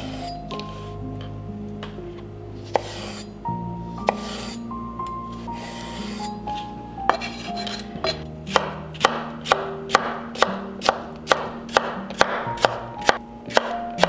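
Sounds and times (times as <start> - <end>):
soft background music: 0.0 - 14.0
knife chopping on wooden board: 2.7 - 3.2, 4.1 - 4.6, 7.1 - 13.8.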